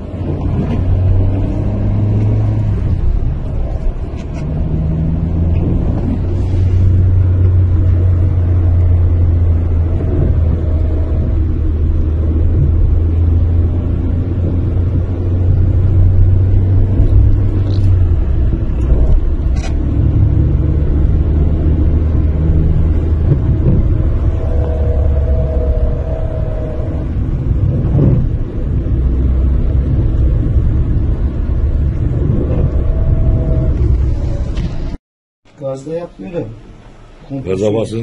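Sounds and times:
car drivetrain drone: 0.0s - 35.0s
gear whine: 14.7s - 35.0s.

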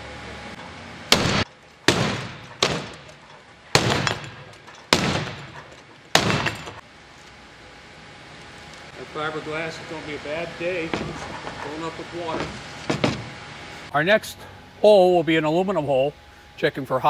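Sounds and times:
sledgehammer striking fiberglass: 1.1s - 6.8s, 12.4s - 13.4s.

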